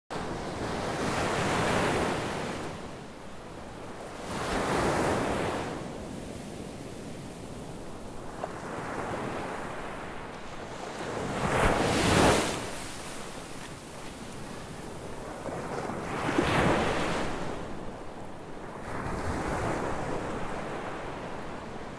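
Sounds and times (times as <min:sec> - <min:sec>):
ocean surf breaking: 0:07.6 - 0:17.9.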